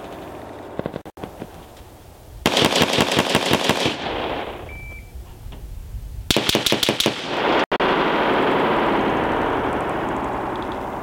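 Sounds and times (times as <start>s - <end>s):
rifle shots: 2.4s - 4.7s, 6.3s - 11.0s
short faint beep: 4.7s - 5.2s.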